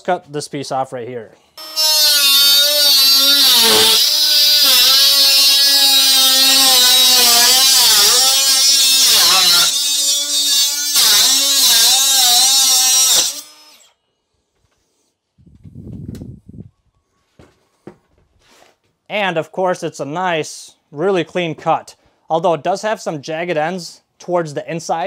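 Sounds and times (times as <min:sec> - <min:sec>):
angle grinder cutting metal: 0:01.6 - 0:13.9.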